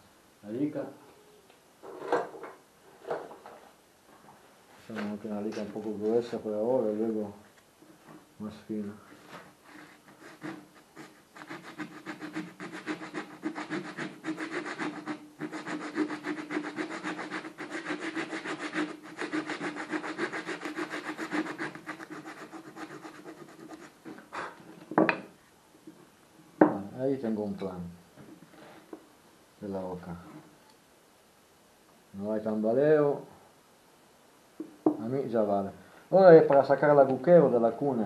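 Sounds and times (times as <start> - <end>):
rasp scraping wood: 9.7 - 24.6.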